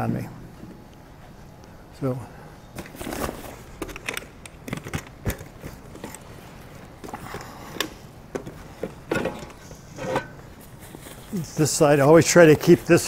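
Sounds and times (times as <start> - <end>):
bag rustling: 2.8 - 7.7.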